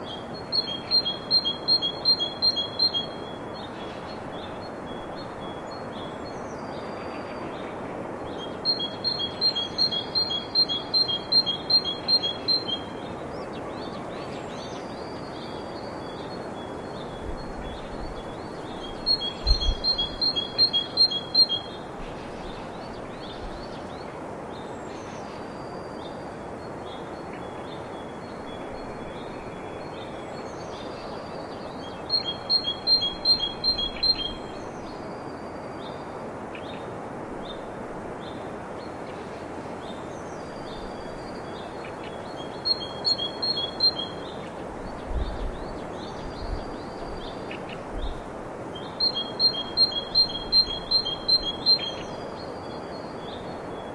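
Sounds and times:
steady background hiss: 0:00.0 - 0:53.9
bird singing paired high chirps: 0:00.5 - 0:03.3, 0:08.4 - 0:12.9, 0:18.7 - 0:21.8, 0:31.8 - 0:34.6, 0:42.2 - 0:44.4, 0:48.8 - 0:53.4.

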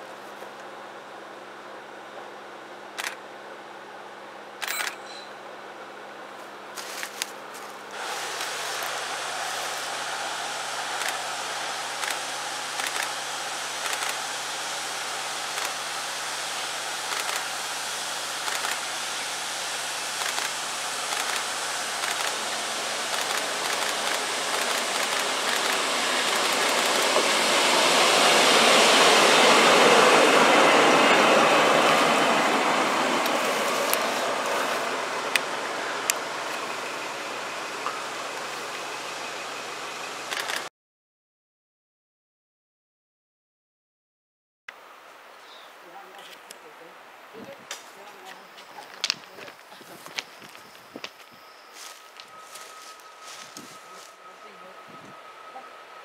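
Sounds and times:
diesel locomotive passing by: 0:05.3 - 0:40.7, 0:47.9 - 0:56.0.

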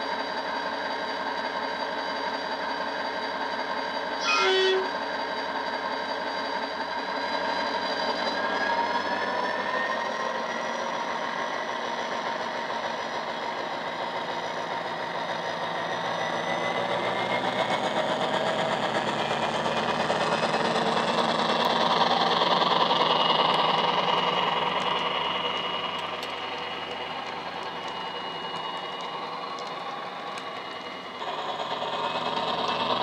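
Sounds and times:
model diesel engine sound: 0:00.0 - 0:33.0
rising whine: 0:18.7 - 0:33.0.

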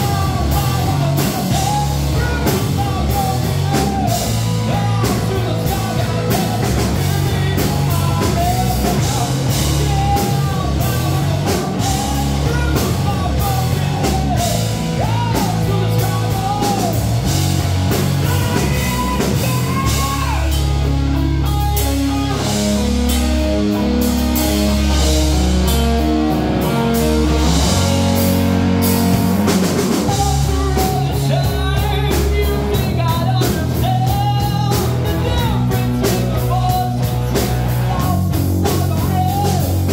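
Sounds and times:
man singing lead vocal: 0:00.0 - 0:28.2, 0:29.4 - 0:39.9
bass guitar: 0:00.0 - 0:39.9
drum kit: 0:00.0 - 0:39.9.

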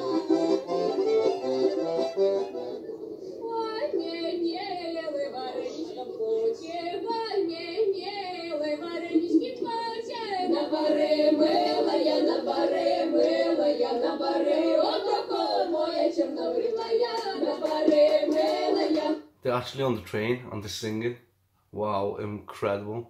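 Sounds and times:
women singing a cappella: 0:03.4 - 0:19.3.

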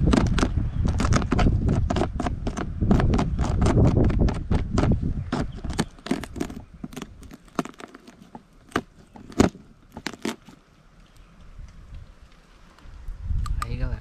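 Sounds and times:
knife scraping crab shell: 0:00.0 - 0:10.6.

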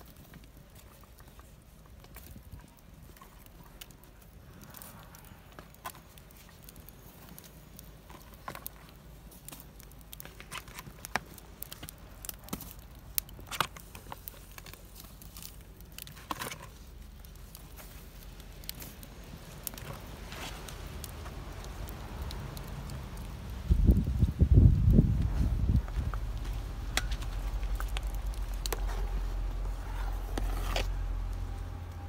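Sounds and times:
wood fire crackling and popping: 0:00.0 - 0:32.0
low steady rumble: 0:14.1 - 0:32.0.

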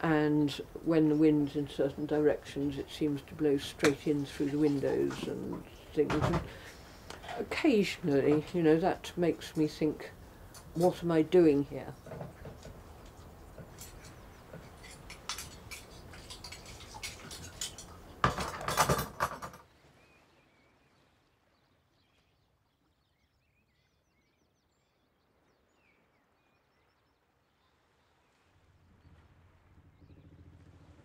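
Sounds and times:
dishes and cutlery clinking: 0:13.6 - 0:19.6.

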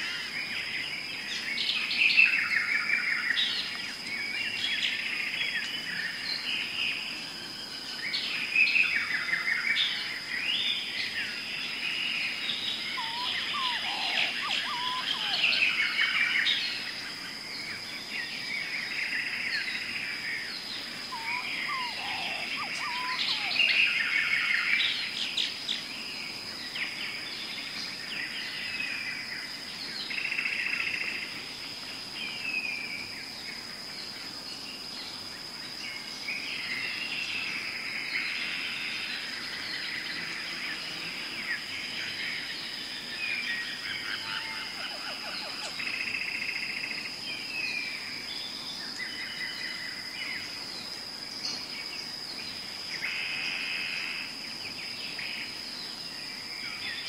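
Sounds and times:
high insect drone: 0:00.0 - 0:57.0
birds chirping and calling: 0:11.9 - 0:17.0, 0:20.7 - 0:25.8, 0:38.3 - 0:46.5
low whistled calls: 0:12.5 - 0:16.6, 0:20.8 - 0:25.0.

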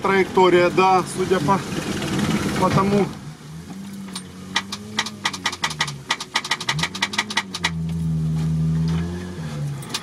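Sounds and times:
off-road vehicle engine: 0:00.0 - 0:10.0
sharp clicks and rattles: 0:03.9 - 0:08.0, 0:09.8 - 0:10.0.

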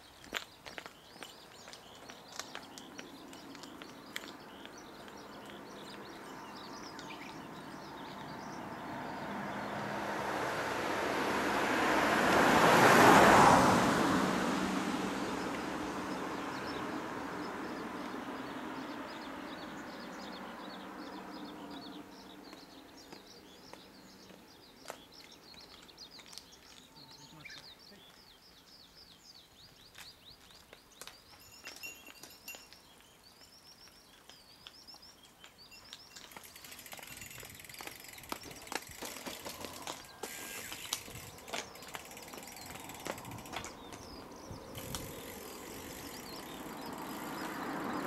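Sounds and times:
birds chirping faintly: 0:00.0 - 0:10.6, 0:15.2 - 0:48.0
car passing by: 0:04.4 - 0:23.1, 0:39.2 - 0:48.0.

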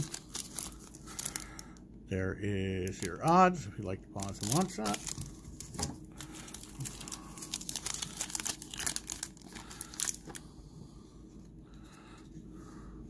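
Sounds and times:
foil wrapper crinkling and tearing: 0:00.0 - 0:01.6, 0:04.2 - 0:10.4.

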